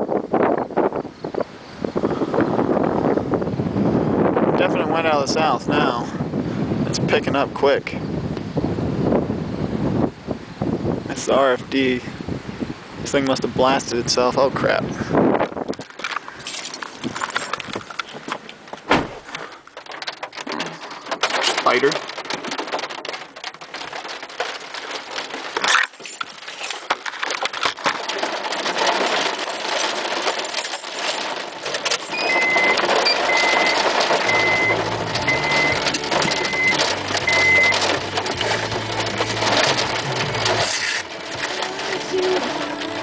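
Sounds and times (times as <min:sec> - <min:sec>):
gusting wind on microphone: 0:00.0 - 0:43.0
rain pelting a car: 0:04.1 - 0:06.4, 0:11.0 - 0:43.0
car warning chime beeping: 0:32.1 - 0:38.0.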